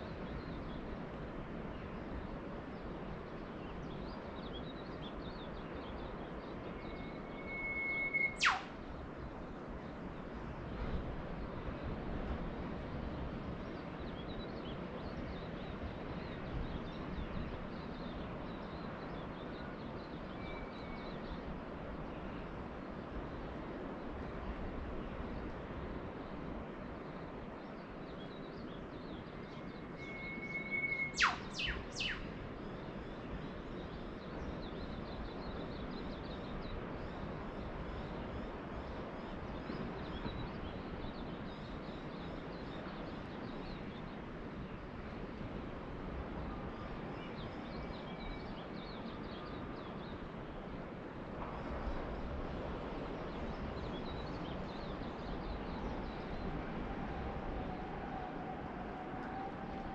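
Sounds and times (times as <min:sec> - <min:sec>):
distant ocean surf: 0:00.0 - 0:59.9
downward-sweeping whistles: 0:06.7 - 0:08.8, 0:29.4 - 0:32.4, 0:55.9 - 0:59.9
faint high chirps: 0:06.8 - 0:08.7, 0:29.6 - 0:32.3
birds calling: 0:07.5 - 0:08.7, 0:29.9 - 0:32.3.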